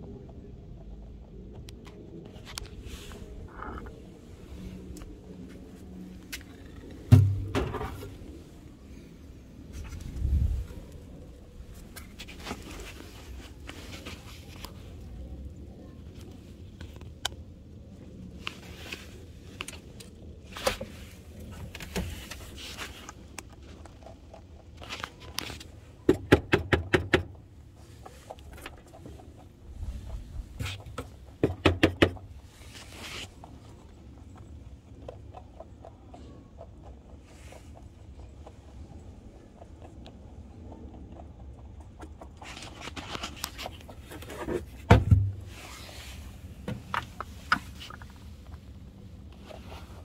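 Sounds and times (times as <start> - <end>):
rabbit rustling and scuffing: 2.3 - 9.0, 9.6 - 15.5, 18.3 - 23.8, 32.2 - 34.7, 42.3 - 50.0.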